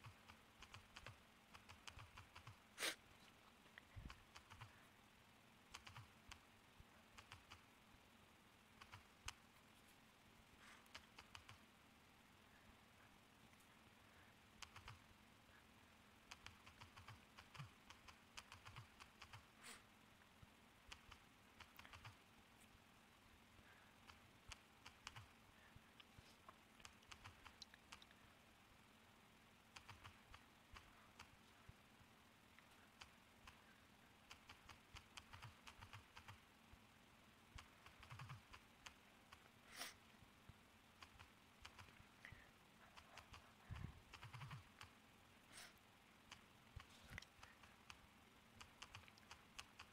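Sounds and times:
touchscreen typing taps: 44.1s - 44.6s.

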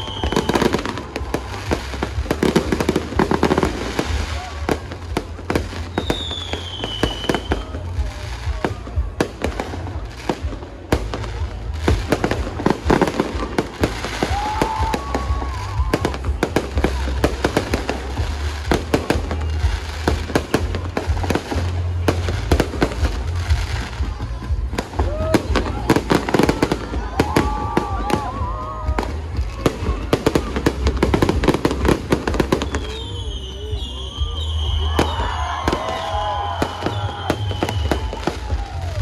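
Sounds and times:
falling firework whistle: 0.0s - 2.0s, 5.6s - 8.7s, 12.2s - 23.3s, 30.4s - 39.0s
fireworks bangs and crackling: 0.0s - 39.0s.

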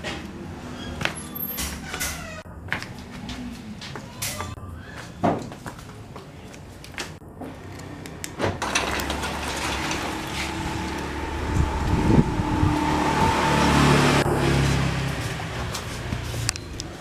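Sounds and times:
car engine starting and idling: 8.6s - 15.8s.

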